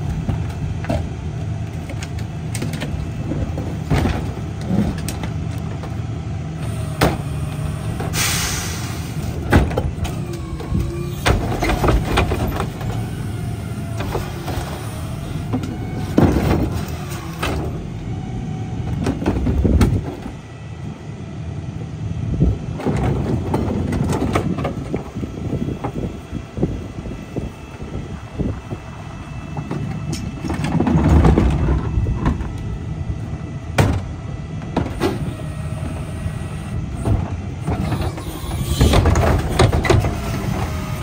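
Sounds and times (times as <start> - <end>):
bins thumping and clattering: 2.6 - 6.0, 9.4 - 13.0, 15.5 - 17.8, 29.6 - 32.5
short hiss: 8.2 - 9.1.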